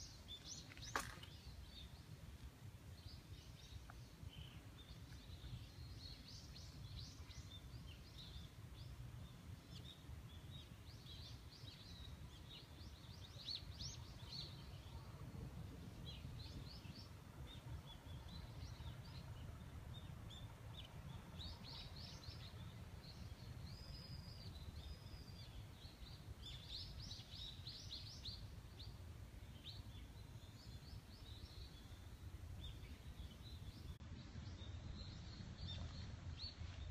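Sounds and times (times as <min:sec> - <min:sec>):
faint low rumble: 0:00.1 - 0:36.9
small birds chirping: 0:16.0 - 0:36.9.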